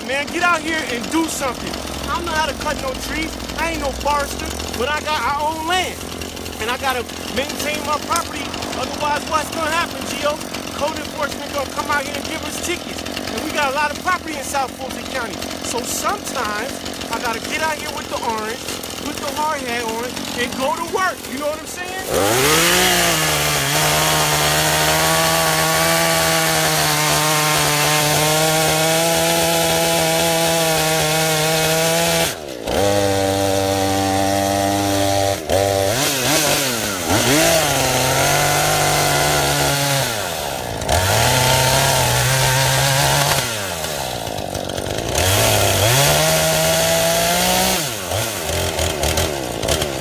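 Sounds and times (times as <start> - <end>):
chainsaw cutting and revving: 0.0 - 50.0.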